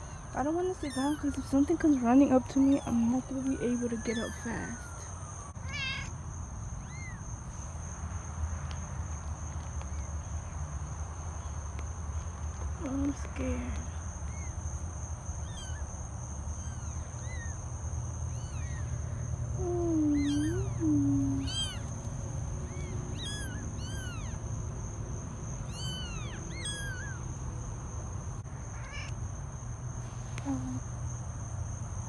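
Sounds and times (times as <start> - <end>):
kittens mewing: 0.7 - 1.6, 2.6 - 7.3, 15.3 - 22.0, 22.6 - 24.4, 25.6 - 27.4, 28.6 - 29.2.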